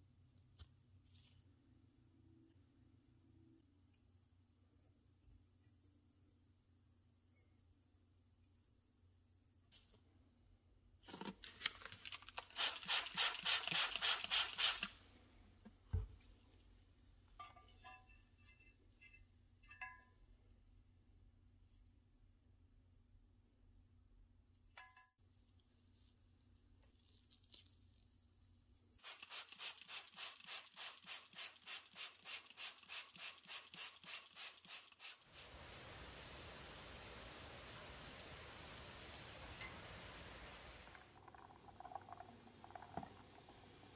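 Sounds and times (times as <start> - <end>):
squeeze bottle squirting water: 11.1 - 15.0, 29.0 - 35.6.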